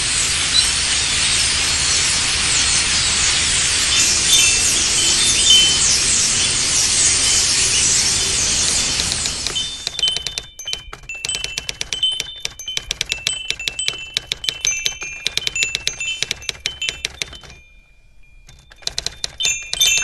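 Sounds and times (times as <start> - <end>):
typewriter keys striking: 8.7 - 17.6, 18.5 - 20.0.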